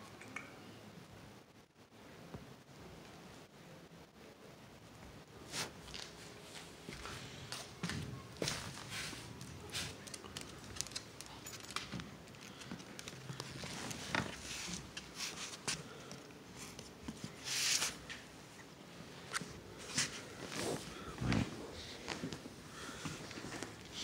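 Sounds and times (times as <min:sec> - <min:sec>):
dog claws clicking on tiles: 0:09.4 - 0:14.0.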